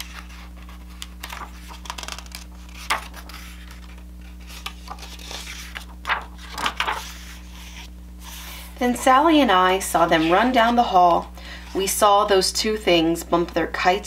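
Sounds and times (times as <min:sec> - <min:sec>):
book pages turning: 0:00.0 - 0:08.8.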